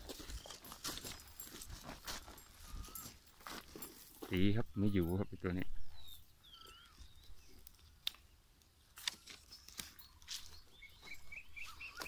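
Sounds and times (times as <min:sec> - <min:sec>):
faint bird chirps: 0:04.4 - 0:07.6, 0:09.2 - 0:12.0
twigs crunching: 0:06.7 - 0:12.0.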